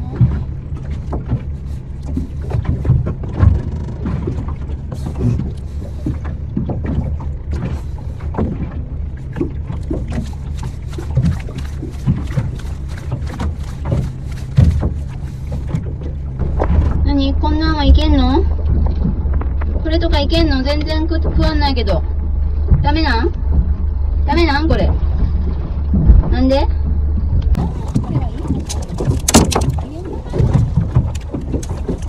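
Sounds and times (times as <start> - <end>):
boat engine idling: 0.0 - 32.0
water splashing against hull: 0.0 - 32.0.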